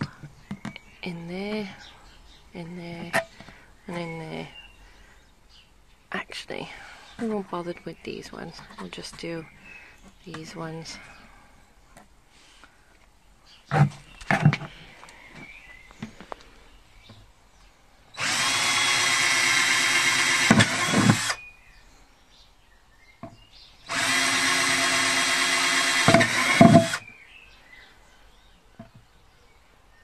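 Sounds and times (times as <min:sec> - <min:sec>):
cordless drill whining: 0:18.2 - 0:21.4, 0:23.9 - 0:27.0
drill knocks: 0:18.2 - 0:21.4, 0:23.9 - 0:27.0.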